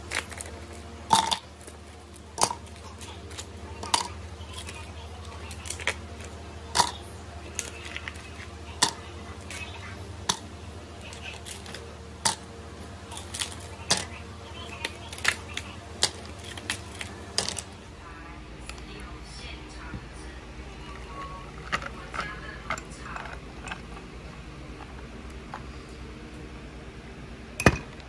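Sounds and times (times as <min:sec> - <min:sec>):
ice cubes clinking in cup: 0:01.1 - 0:01.5.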